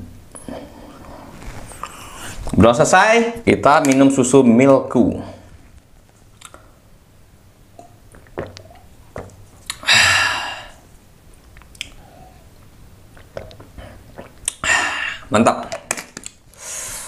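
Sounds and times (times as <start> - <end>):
person swallowing: 7.8 - 10.8, 13.1 - 15.3
breathy exhale: 9.8 - 10.8, 16.6 - 17.0.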